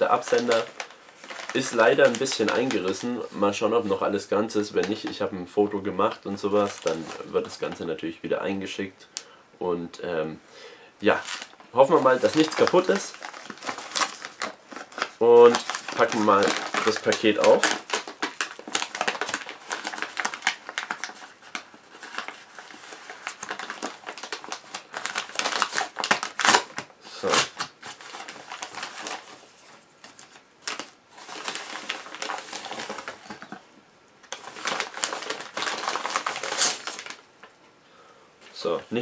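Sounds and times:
plastic mailer tearing: 0.0 - 3.3, 11.1 - 33.6, 34.2 - 37.2
plastic mailer crinkling: 0.0 - 3.9, 6.0 - 7.8, 11.1 - 37.5.

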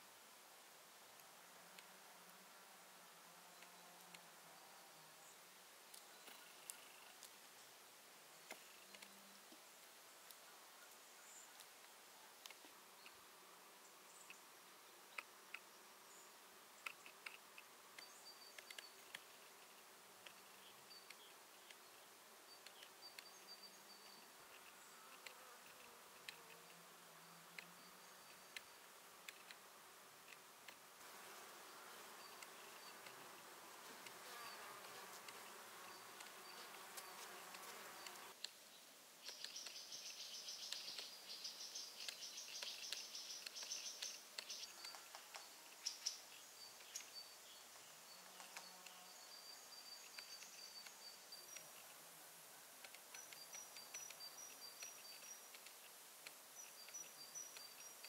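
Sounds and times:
insects buzzing: 8.3 - 58.0
small clicks: 8.4 - 9.2, 16.8 - 21.8, 22.6 - 23.3, 24.5 - 26.8, 27.5 - 29.6, 30.2 - 30.8, 39.2 - 39.8, 40.6 - 41.2, 42.0 - 45.9, 52.8 - 58.0
faint high chirps: 15.1 - 19.7, 20.3 - 25.3, 39.2 - 52.0.

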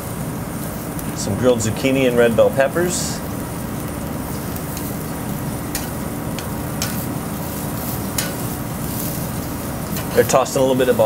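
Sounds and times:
steady low hum: 0.0 - 11.0
vegetables sizzling on a grill: 0.0 - 11.0
metal tongs clicking on grate: 4.7 - 4.9, 5.7 - 7.1, 8.1 - 8.5.

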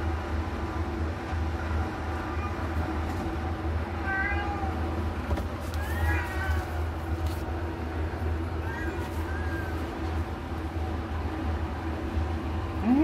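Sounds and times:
steady low hum: 0.0 - 13.0
cat mewing: 5.8 - 6.9.

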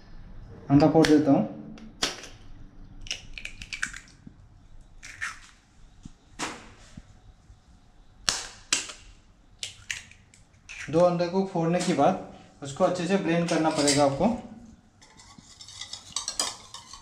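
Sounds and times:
eggshells cracking with fork: 2.0 - 4.4, 5.0 - 5.6, 8.3 - 11.1.

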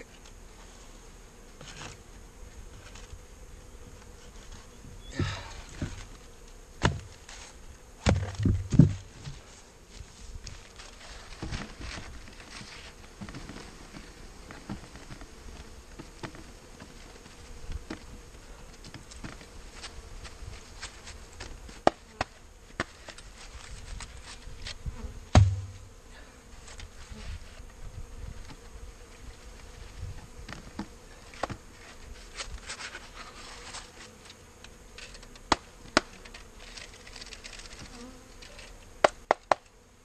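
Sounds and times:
honeybees buzzing: 0.0 - 40.0
knocks from wooden box: 25.3 - 25.8
heavy thump: 25.3 - 25.9.

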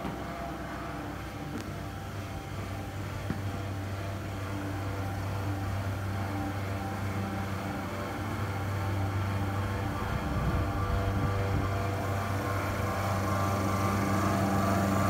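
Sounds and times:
faint steady tones: 0.0 - 15.0
low machine hum: 0.0 - 15.0.

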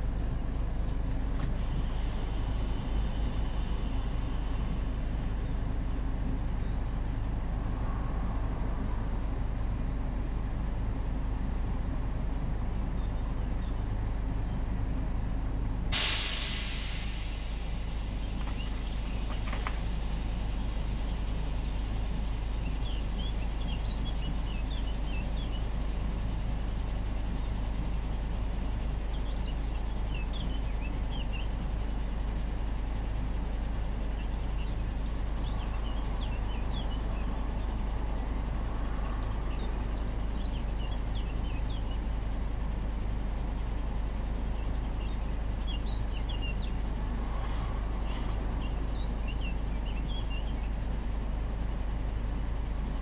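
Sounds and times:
van engine rumbling: 0.0 - 53.0
songbird chirping: 17.0 - 53.0.

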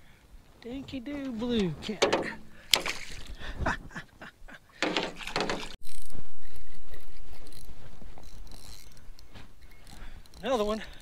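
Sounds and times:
water splashing against boat: 1.9 - 3.4, 4.8 - 5.8
fishing reel whirring: 5.8 - 11.0.

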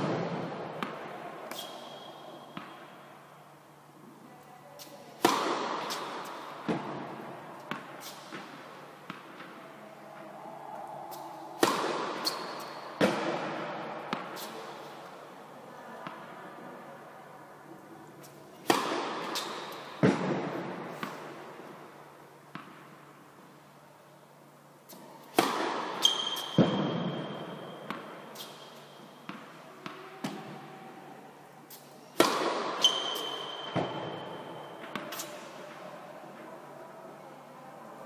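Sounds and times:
racket hitting tennis ball: 0.0 - 3.1, 4.8 - 9.6, 11.1 - 15.2, 18.2 - 21.9, 24.9 - 30.6, 31.7 - 35.8
ball striking court: 5.2 - 7.1, 11.6 - 14.4, 18.7 - 21.2, 25.4 - 28.1, 32.2 - 35.2
ball bouncing: 25.4 - 28.2, 32.2 - 35.2.

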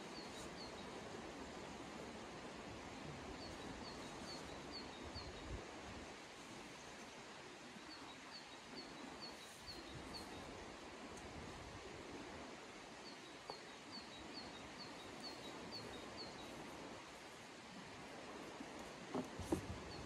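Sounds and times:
faint river rushing: 0.0 - 20.0.

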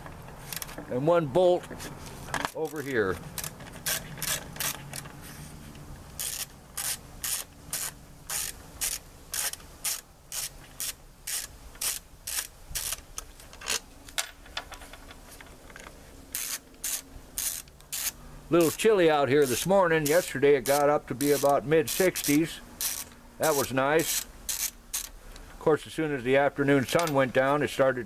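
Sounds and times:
ratchet clicking: 3.4 - 5.0, 6.1 - 13.0, 16.3 - 18.8, 19.4 - 25.2.

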